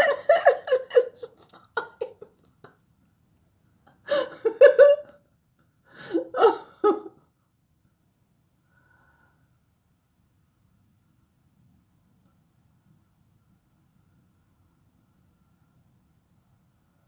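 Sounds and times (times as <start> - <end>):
person laughing: 0.0 - 2.8, 4.0 - 5.2, 6.1 - 7.2.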